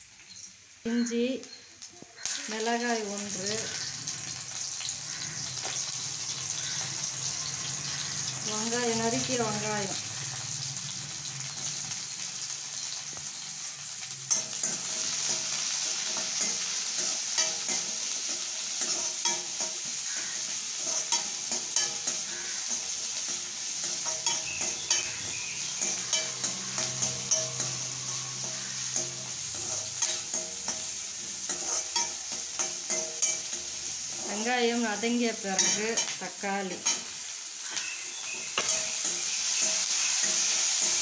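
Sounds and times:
vegetables sizzling in oil: 0.0 - 41.0
metal ladle scraping pan: 14.3 - 34.3, 35.5 - 36.2.

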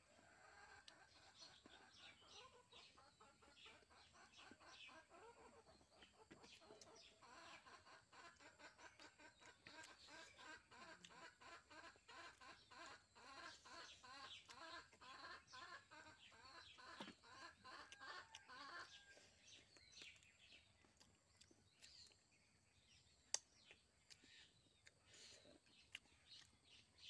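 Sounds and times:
chicken clucking: 0.0 - 22.5.

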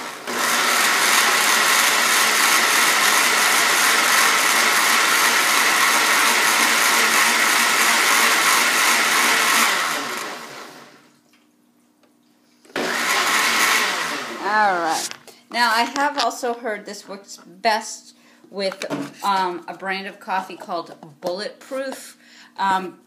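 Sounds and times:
blender running: 0.0 - 11.1, 12.7 - 15.2.

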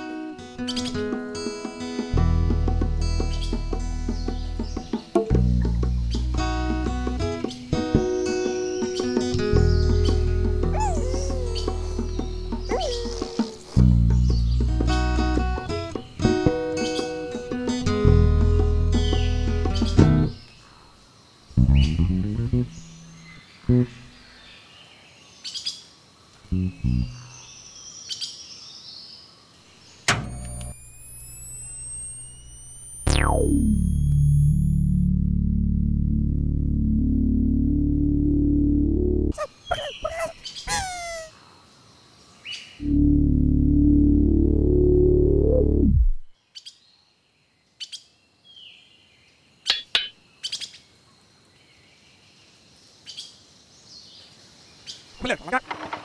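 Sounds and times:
bird chirps: 8.4 - 15.4, 39.4 - 41.5
cartoon downward swoop: 10.7 - 13.8, 30.1 - 34.8, 39.4 - 41.3
low electric hum: 30.1 - 39.3
rising electronic tones: 30.1 - 41.3, 42.8 - 46.3
long falling glide: 30.2 - 34.8
bird chirps and whistles: 39.4 - 41.3.

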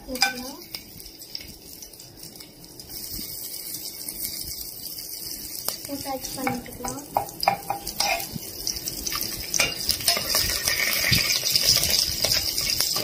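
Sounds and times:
frying sizzle: 0.0 - 13.0
spoon scraping a metal pot: 7.2 - 8.4, 9.6 - 13.0.

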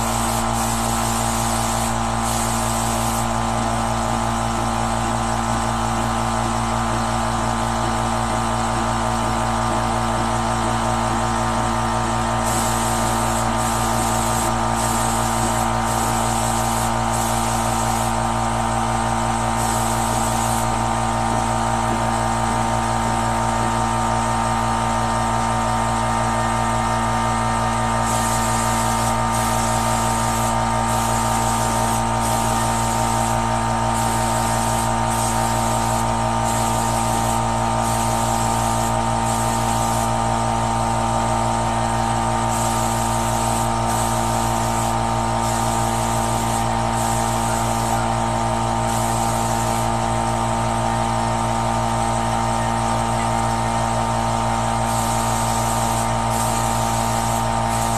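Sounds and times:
spray gun air hiss: 0.0 - 4.1, 12.2 - 22.2, 26.2 - 40.7, 41.3 - 50.7, 54.3 - 57.9
air compressor running: 0.0 - 57.9.

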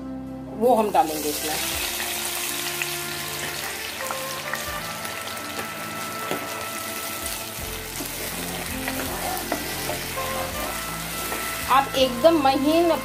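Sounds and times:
hot oil sizzling in a pan: 1.0 - 13.0.

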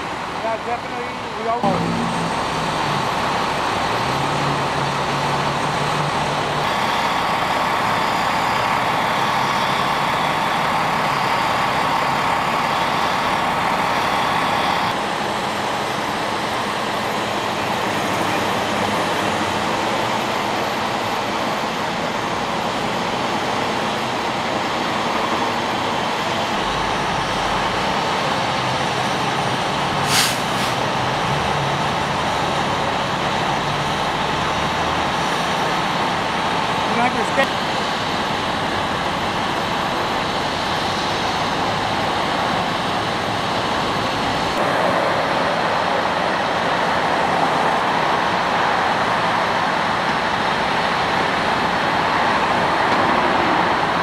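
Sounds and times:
diesel engines idling: 0.0 - 54.0
freeway traffic road noise: 0.0 - 54.0
sharp hiss: 30.0 - 30.8.

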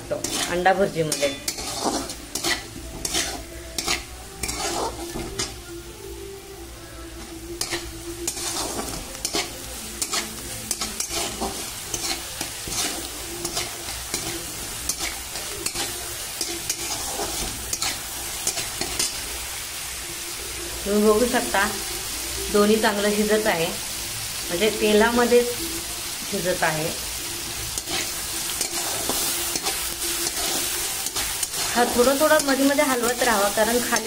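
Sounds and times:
vegetables sizzling in oil: 0.0 - 34.0
spatula scraping a pan: 0.1 - 5.6, 7.6 - 19.3, 27.7 - 34.0.

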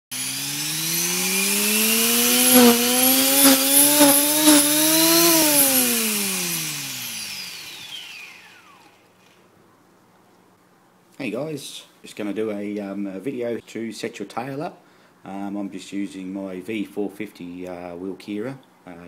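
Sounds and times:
helicopter rotor mechanical whine: 0.2 - 9.0.

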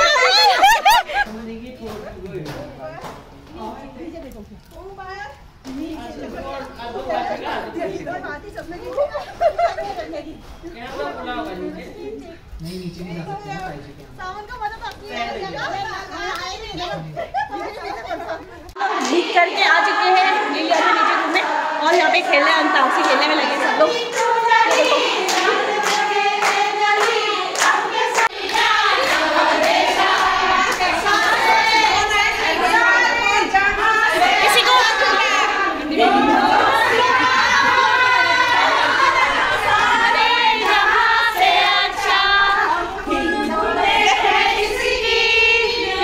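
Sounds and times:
women singing together: 0.0 - 1.3, 5.5 - 12.5, 14.4 - 46.0
hands clapping steady beat: 0.6 - 4.8, 22.9 - 33.0, 36.0 - 42.6.

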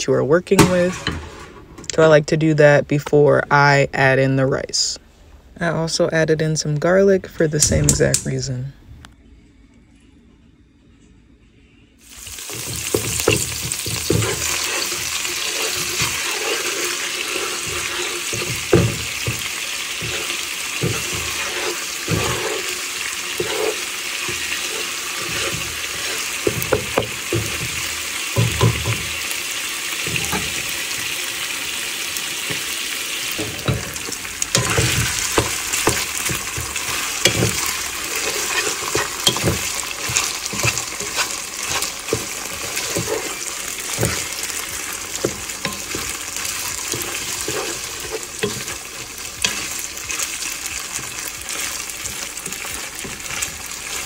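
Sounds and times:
food sizzling in hot oil: 12.0 - 54.0
wooden spatula scraping pan: 12.3 - 31.2, 32.3 - 54.0.

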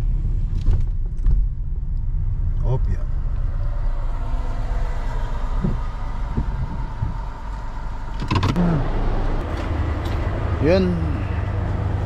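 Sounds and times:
car engine rumble from inside: 0.0 - 12.0
car door latch clicks: 8.1 - 8.6.

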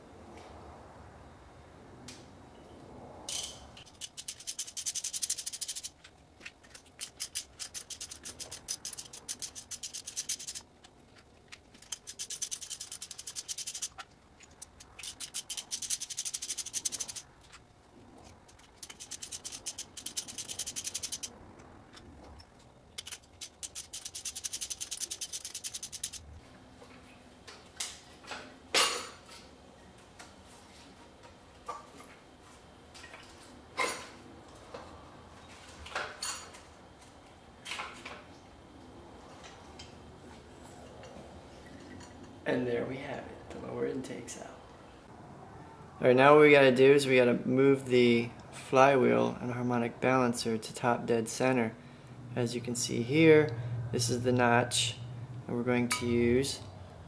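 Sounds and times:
ratchet clicking: 3.8 - 5.9, 6.7 - 10.6, 11.7 - 17.3, 18.4 - 21.3, 23.0 - 26.3.

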